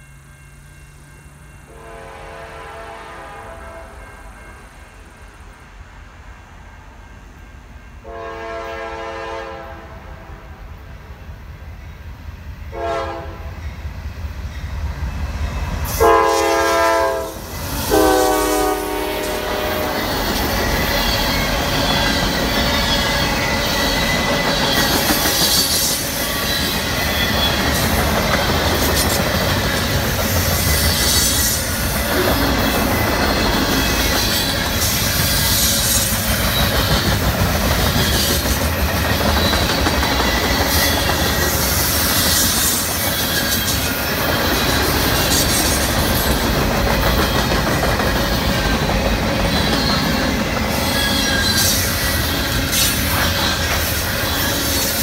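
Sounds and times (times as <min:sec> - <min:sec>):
train wheels rumbling on rail: 0:00.0 - 0:55.0
high-pitched wheel squeals: 0:49.4 - 0:55.0.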